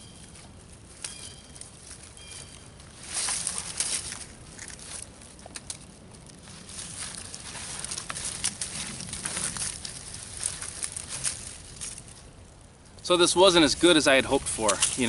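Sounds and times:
bark tearing and snapping: 0:06.8 - 0:12.1.

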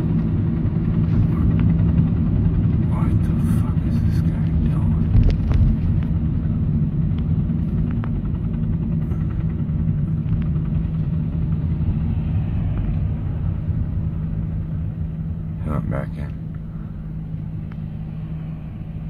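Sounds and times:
car engine and road noise: 0:00.0 - 0:19.0
helicopter flying low overhead: 0:00.0 - 0:19.0.

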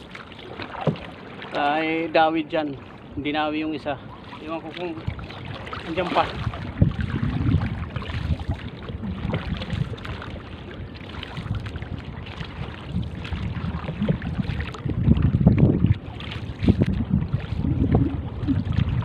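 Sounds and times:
water lapping against boat: 0:00.0 - 0:19.0
wind buffeting microphone: 0:00.7 - 0:19.0
rumble: 0:06.8 - 0:10.0, 0:13.7 - 0:19.0.

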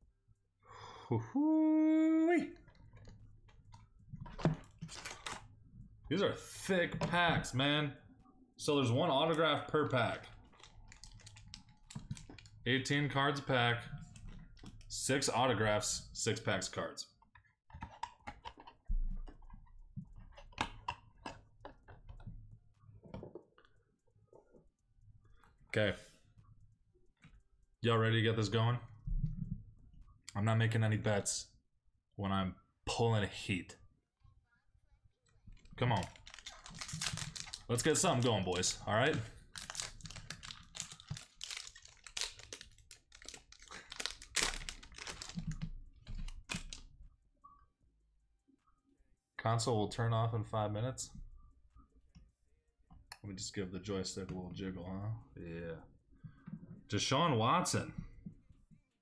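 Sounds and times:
card packs handling clicks: 0:04.8 - 0:05.4, 0:35.9 - 0:45.6, 0:46.2 - 0:46.9
foil wrapper crinkling: 0:10.6 - 0:12.6, 0:35.9 - 0:45.6.

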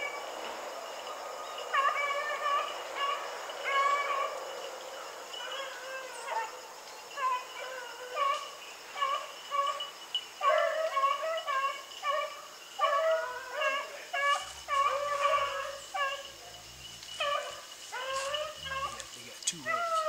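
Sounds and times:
beagles baying: 0:00.0 - 0:20.0.

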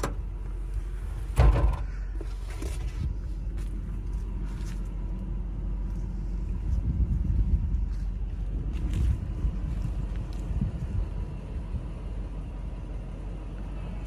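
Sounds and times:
engine idling: 0:00.0 - 0:14.0
loud thump: 0:01.3 - 0:01.9.

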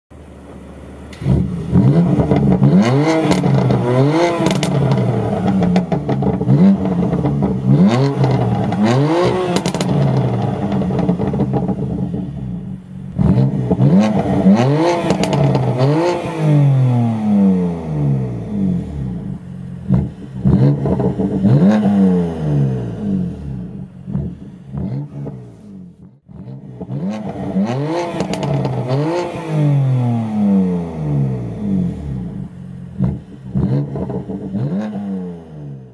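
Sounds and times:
car engine revving: 0:00.2 - 0:35.9
exhaust cracks and pops: 0:04.4 - 0:08.5, 0:09.6 - 0:12.0.

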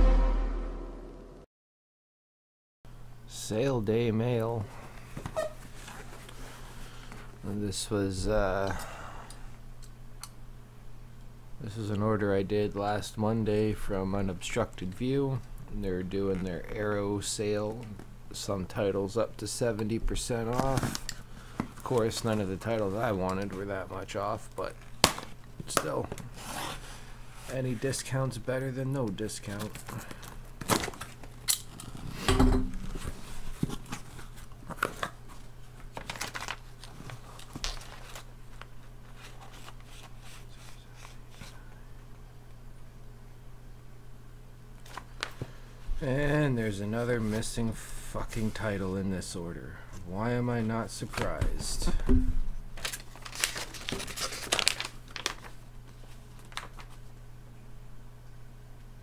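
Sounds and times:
paper and cardboard rustling: 0:32.8 - 0:41.6, 0:52.8 - 0:57.0.

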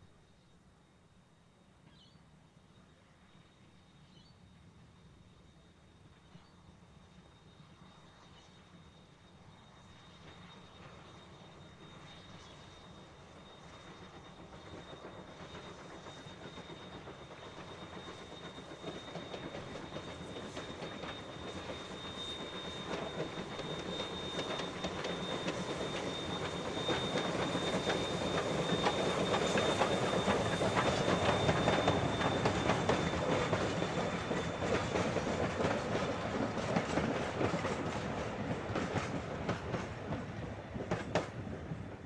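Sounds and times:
train wheels clicking over rails: 0:13.9 - 0:42.0.

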